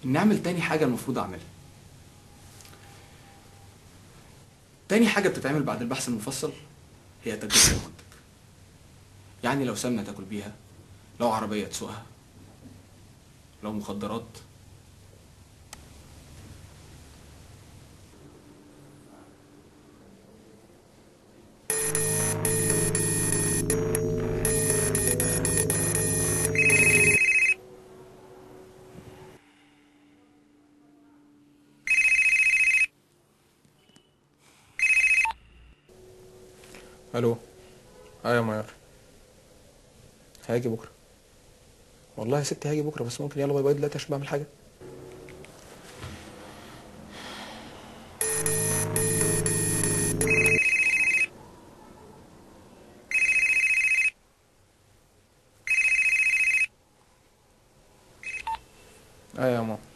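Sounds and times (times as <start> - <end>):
phone ringing with warbling trill: 21.7 - 27.6, 48.2 - 51.3.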